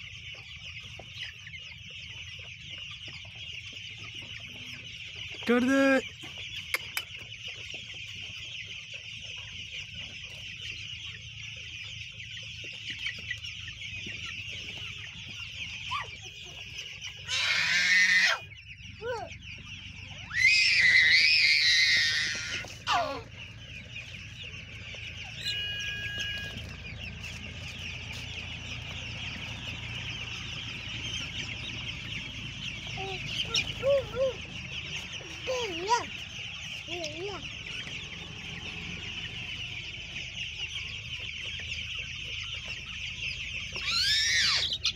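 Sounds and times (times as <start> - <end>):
chicks peeping: 0.0 - 44.9
toddler squealing: 17.2 - 19.3, 20.2 - 23.3, 43.8 - 44.8.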